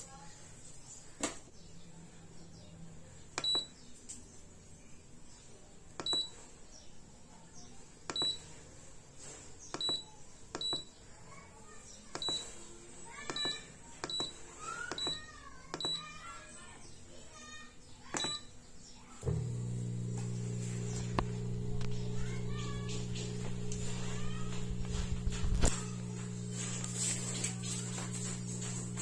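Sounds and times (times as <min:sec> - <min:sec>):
short high dishwasher beeps: 0:03.4 - 0:03.7, 0:06.0 - 0:06.4, 0:08.1 - 0:08.4, 0:09.8 - 0:10.9, 0:12.2 - 0:12.5, 0:13.3 - 0:15.2, 0:15.8 - 0:16.1, 0:18.2 - 0:18.5.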